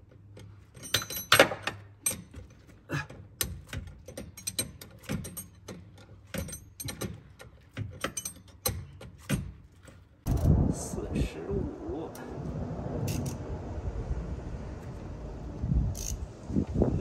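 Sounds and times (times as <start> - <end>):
metal tools clinking: 0.6 - 1.4, 4.0 - 9.4.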